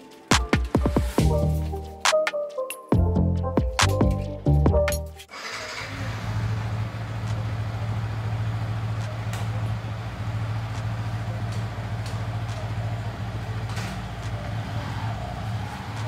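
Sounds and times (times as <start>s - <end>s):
motorcycle engine idling: 5.7s - 16.0s.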